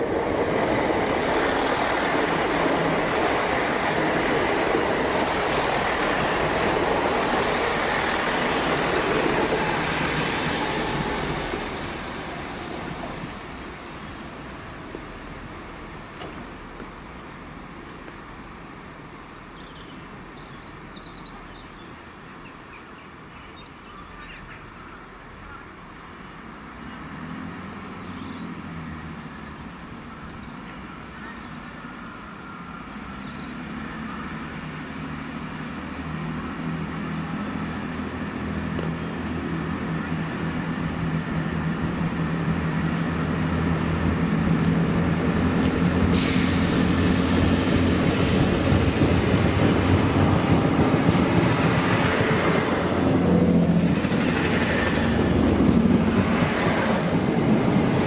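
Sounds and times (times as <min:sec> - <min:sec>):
diesel train engine drone: 0:00.0 - 0:18.9, 0:29.2 - 0:58.0
wheel and rail hiss: 0:00.0 - 0:18.9, 0:39.7 - 0:58.0.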